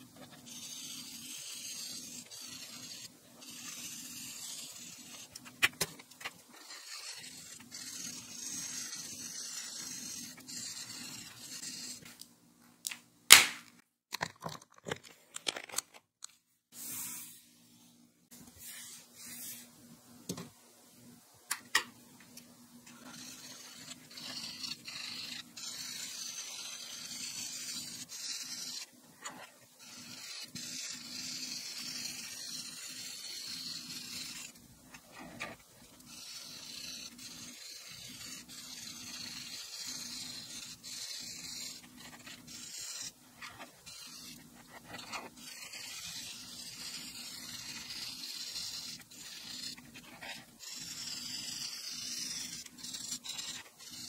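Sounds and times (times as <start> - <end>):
marker scratching on paper: 0.1 - 5.6, 6.5 - 12.2, 22.9 - 54.0.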